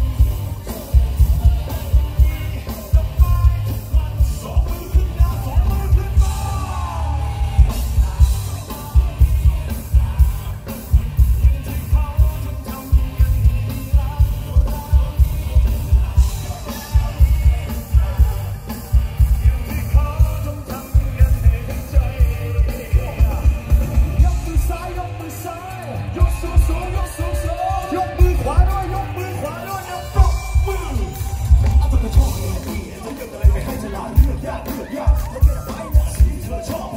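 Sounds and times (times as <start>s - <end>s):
electric guitar: 0.0s - 36.9s
heavy bass-drum beat: 0.0s - 36.9s
sung vocals: 0.0s - 36.9s.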